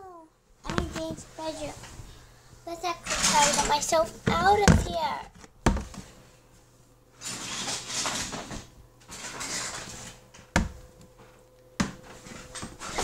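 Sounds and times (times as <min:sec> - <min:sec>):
toys rustling and scraping: 0:00.6 - 0:06.2, 0:07.2 - 0:10.4, 0:12.0 - 0:13.0.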